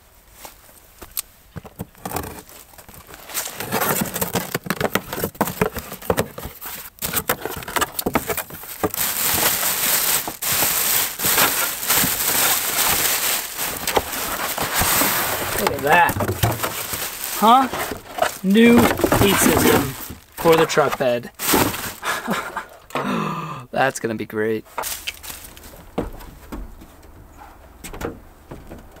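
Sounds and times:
cardboard box packing rustling: 1.5 - 22.8, 24.7 - 29.0
plastic bag crinkling: 1.9 - 22.8, 24.7 - 26.0.

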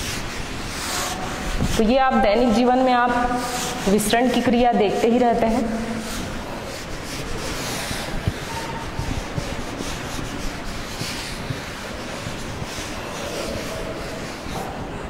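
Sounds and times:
duster rubbing on blackboard: 0.0 - 15.0.

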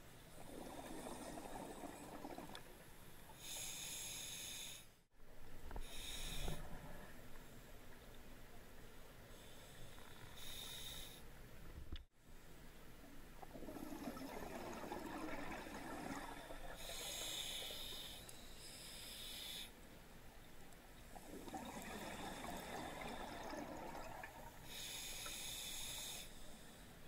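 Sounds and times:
regulator breathing hiss: 3.4 - 5.0, 16.8 - 19.8, 24.7 - 27.0
exhaled bubbles burbling: 13.5 - 16.8, 21.2 - 24.5.

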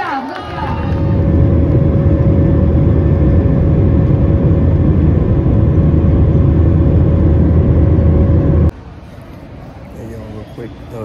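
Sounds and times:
jet cabin engine rumble: 0.4 - 8.7
steady hum tone: 0.4 - 11.0.

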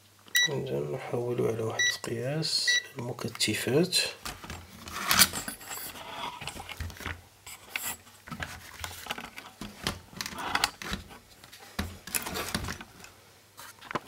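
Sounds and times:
handling rubbing and scraping: 4.4 - 14.0.

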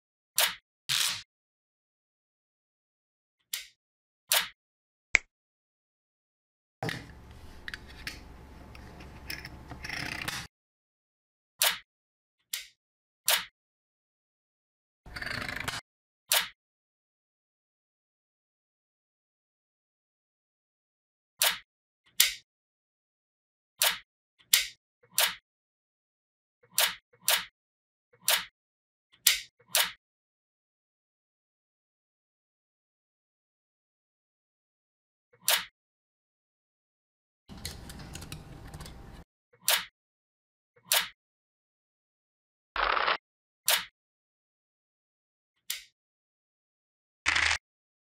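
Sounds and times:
magnetic balls clicking and scraping: 7.2 - 10.5.

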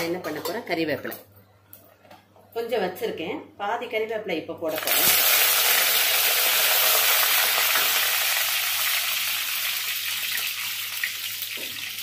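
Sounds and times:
leaves sizzling in hot oil: 4.7 - 12.0.

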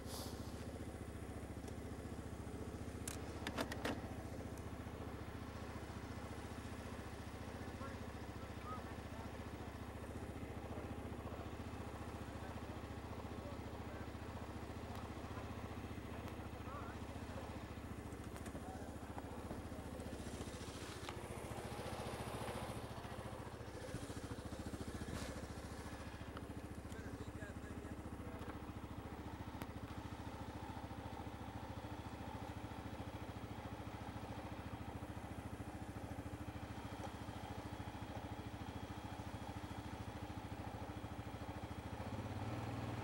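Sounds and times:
atv engine idling: 0.0 - 43.0
faint clicks: 3.0 - 4.7.

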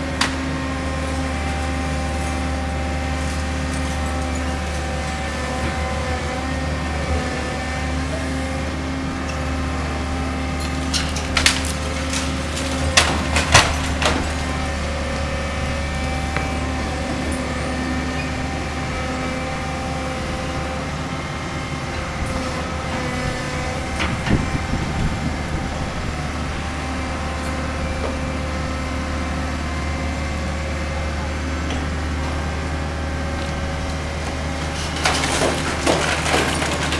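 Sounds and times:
excavator diesel engine running: 0.0 - 36.9
debris cracking and crashing: 10.6 - 18.8, 34.3 - 36.9.

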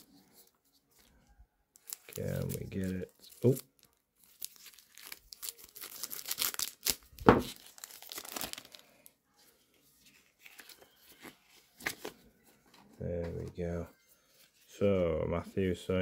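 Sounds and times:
faint rustling of cards: 0.0 - 16.0
plastic wrapper tearing and crinkling: 1.8 - 9.1.

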